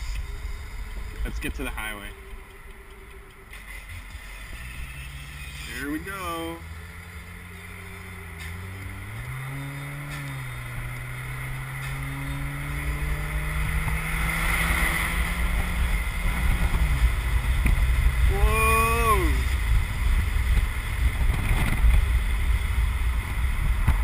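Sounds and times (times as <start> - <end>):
car engine accelerating: 0.0 - 24.0
road noise: 0.0 - 24.0
wind noise: 12.1 - 24.0.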